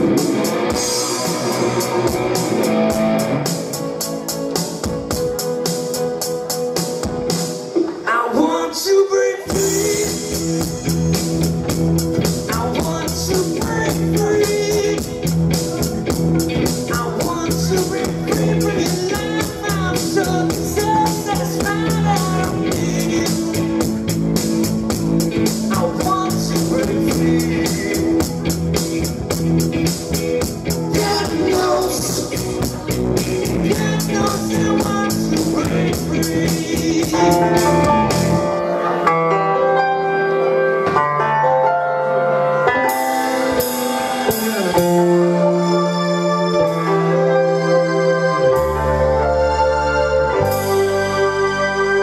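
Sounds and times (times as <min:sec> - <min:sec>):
bass guitar: 0:00.0 - 0:08.0, 0:09.4 - 0:52.0
drum kit with fast hi-hat: 0:00.0 - 0:08.1, 0:09.5 - 0:38.5
electric guitar: 0:00.0 - 0:08.2, 0:09.4 - 0:52.0
person singing: 0:07.9 - 0:11.2, 0:12.2 - 0:24.2, 0:25.3 - 0:28.6, 0:30.6 - 0:39.8
held keyboard-like notes: 0:09.7 - 0:52.0.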